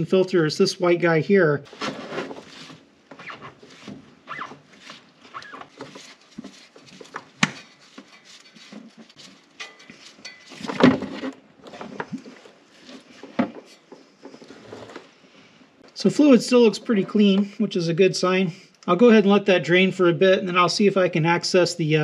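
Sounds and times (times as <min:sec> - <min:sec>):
clicks and scrapes of handling: 0:01.7 - 0:15.2.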